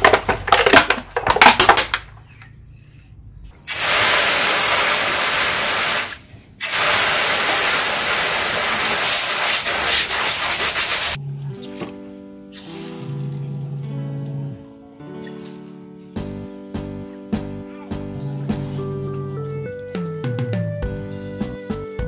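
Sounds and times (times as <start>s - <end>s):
water jet splashing into metal basin: 3.7s - 11.2s.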